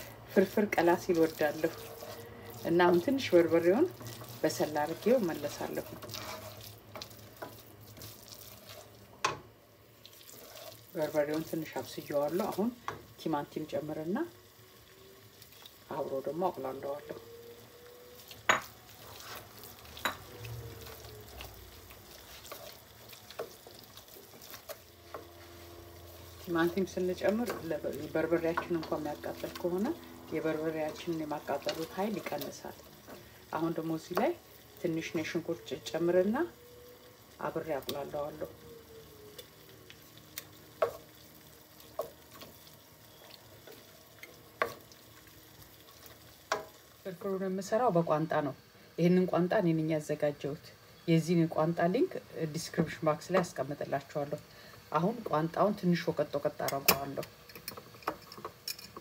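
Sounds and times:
faint sizzle: 0:00.0 - 0:59.0
spoon stirring in pot: 0:00.7 - 0:09.4, 0:10.1 - 0:13.2, 0:18.2 - 0:34.4, 0:39.4 - 0:46.9, 0:56.6 - 0:59.0.

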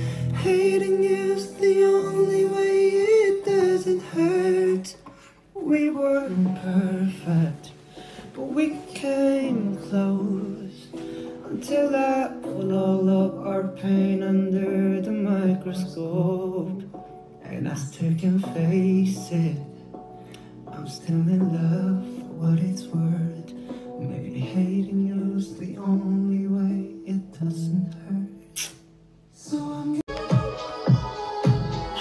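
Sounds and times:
guitar: 0:00.0 - 0:12.9
person singing: 0:00.0 - 0:32.0.

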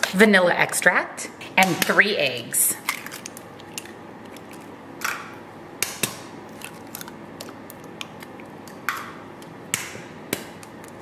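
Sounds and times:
egg cracking against metal bowl: 0:02.9 - 0:11.0.

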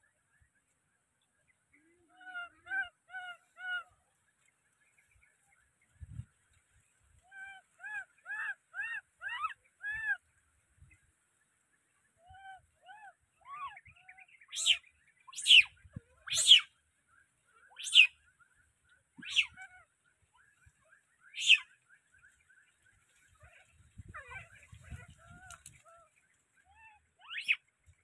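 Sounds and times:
baby monkey crying: 0:19.2 - 0:19.7.

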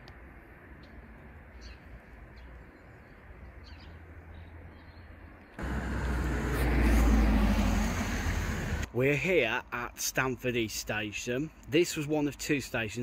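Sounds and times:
road traffic rushing: 0:00.0 - 0:09.2
distant traffic hum: 0:00.0 - 0:13.0.

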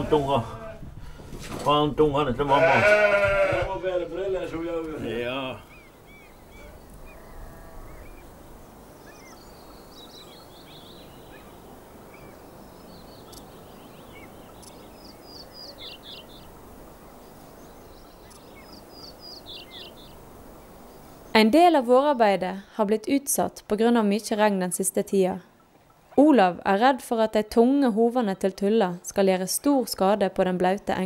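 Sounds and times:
songbirds chirping and trilling: 0:00.0 - 0:22.5
low background hiss: 0:00.0 - 0:31.0.

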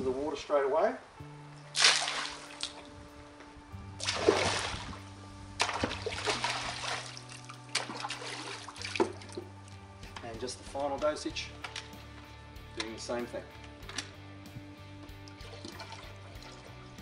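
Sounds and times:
background music sustained notes: 0:00.0 - 0:17.0
water splashing into pool: 0:01.7 - 0:03.0, 0:04.0 - 0:09.8, 0:15.2 - 0:17.0.

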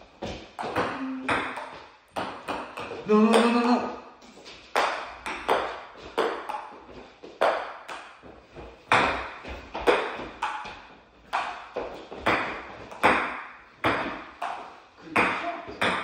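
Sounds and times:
ping-pong ball clicking: 0:10.4 - 0:10.7.

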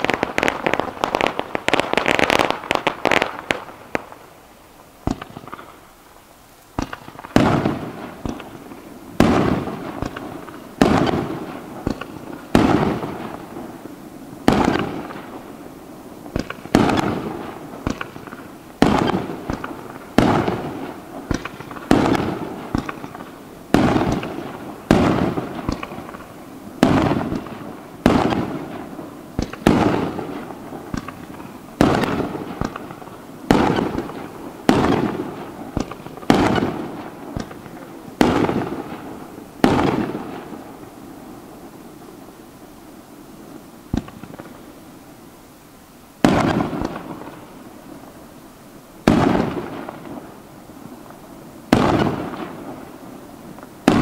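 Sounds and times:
firework shells bursting: 0:05.0 - 0:05.9, 0:06.7 - 0:13.8, 0:16.3 - 0:40.9, 0:43.9 - 0:44.7.

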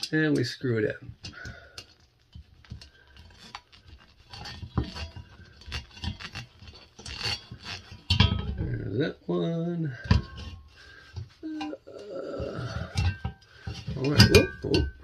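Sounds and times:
screws turned by hand: 0:02.6 - 0:08.3.

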